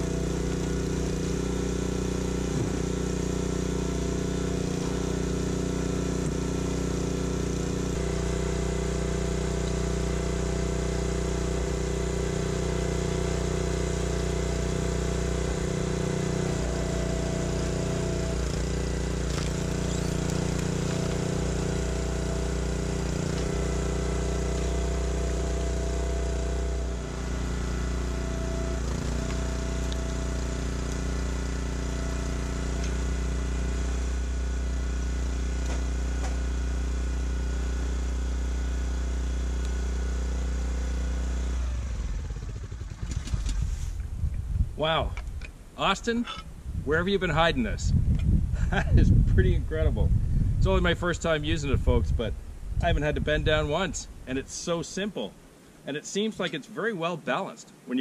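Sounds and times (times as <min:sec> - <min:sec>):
log splitter gas engine running: 0:00.0 - 0:44.1.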